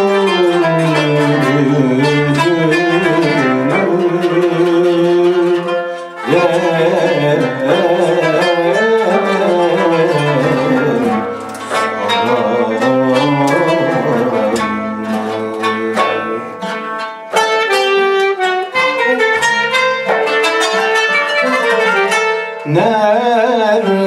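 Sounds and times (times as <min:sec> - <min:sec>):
man singing: 0:00.0 - 0:16.6, 0:22.6 - 0:24.0
kanun: 0:00.0 - 0:23.8
oud: 0:00.0 - 0:24.0
clarinet: 0:09.7 - 0:22.9.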